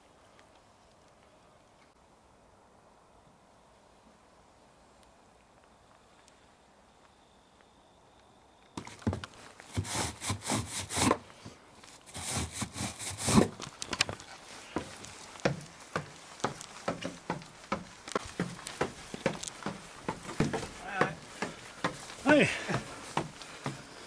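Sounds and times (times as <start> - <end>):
boots on wooden stairs: 8.8 - 24.0.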